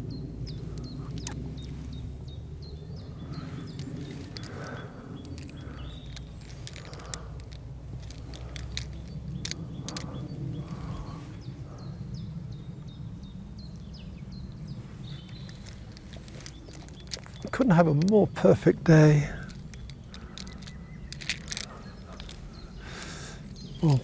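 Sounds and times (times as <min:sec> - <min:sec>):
birds singing and chirping: 0:00.0 - 0:24.0
steady low rumble: 0:00.0 - 0:24.0
sharp clicks: 0:00.5 - 0:02.0, 0:03.3 - 0:11.2, 0:15.2 - 0:24.0.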